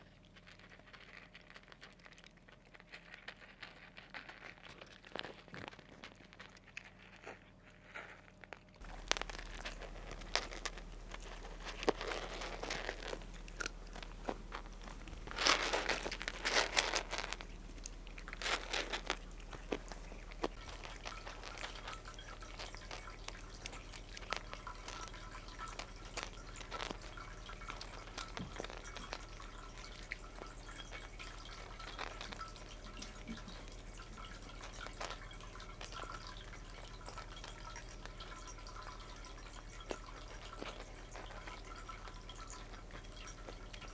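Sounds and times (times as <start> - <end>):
cats crunching dry kibble: 0.0 - 43.9
low steady hum: 0.0 - 43.9.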